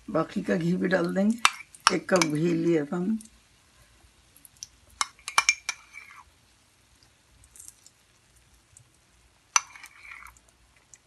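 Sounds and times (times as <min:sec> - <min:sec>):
metal spoon clinking bowl: 0:01.4 - 0:02.5, 0:05.0 - 0:06.2, 0:09.6 - 0:10.4.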